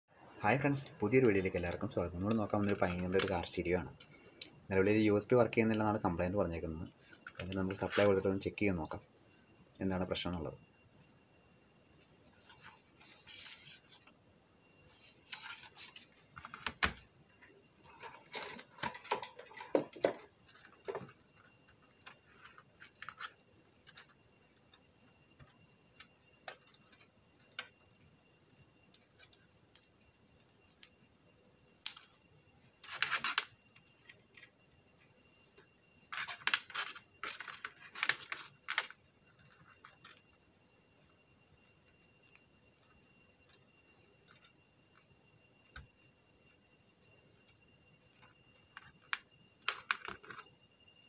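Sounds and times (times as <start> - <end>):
metal chassis and wires handled: 17.8 - 24.2.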